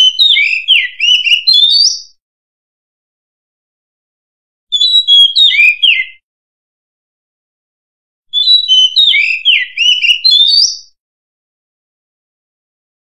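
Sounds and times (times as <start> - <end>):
bird singing whistled notes: 0.0 - 2.2, 4.7 - 6.2, 8.3 - 11.0.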